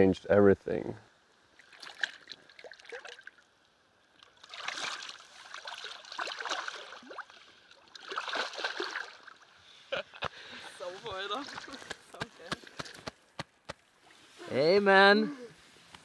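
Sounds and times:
river water splashing and sloshing: 1.3s - 9.8s, 10.6s - 14.4s.

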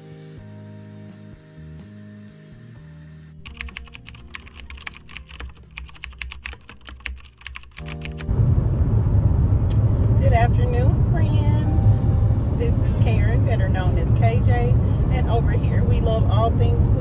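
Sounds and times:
soft music: 3.4s - 8.9s, 10.1s - 16.6s
keyboard key clicks: 3.5s - 8.3s.

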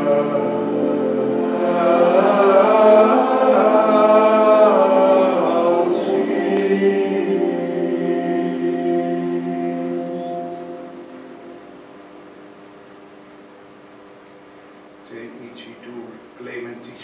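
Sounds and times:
choir singing chant: 0.0s - 11.4s.

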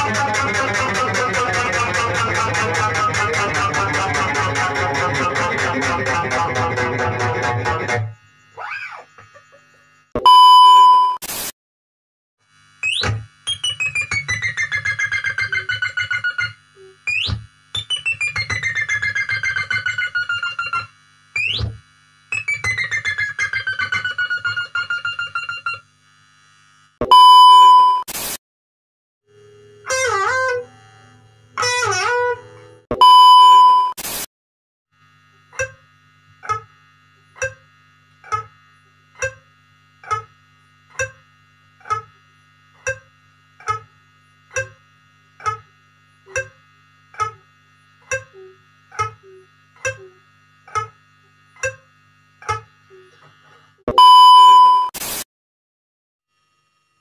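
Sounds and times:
muted guitar plucks: 0.0s - 8.1s, 47.2s - 47.4s, 48.1s - 50.9s
electric guitar wailing notes: 0.0s - 8.2s, 29.8s - 32.8s
guitar beeps with bending notes: 0.0s - 8.2s, 10.2s - 11.2s, 12.8s - 21.6s, 22.4s - 25.8s, 27.0s - 28.0s, 29.4s - 34.0s, 44.5s - 44.8s, 46.3s - 46.6s, 48.1s - 50.9s, 53.9s - 55.0s.

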